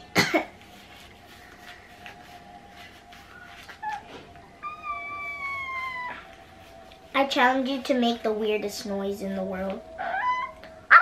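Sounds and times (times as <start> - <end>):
girl making meow-like squeals: 4.6 - 6.3.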